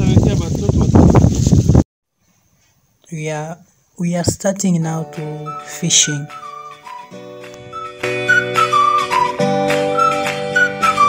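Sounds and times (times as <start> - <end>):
background music with gliding lead: 5.0 - 11.0.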